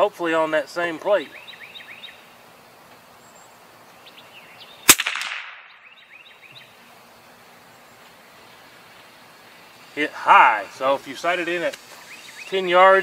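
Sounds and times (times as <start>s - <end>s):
rifle shot: 4.9s - 5.8s.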